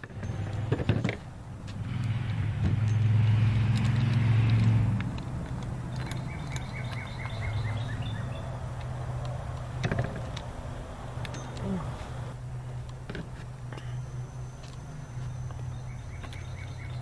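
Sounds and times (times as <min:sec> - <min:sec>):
vehicle engine passing: 0:00.0 - 0:17.0
bird chirping: 0:05.8 - 0:08.6, 0:13.8 - 0:17.0.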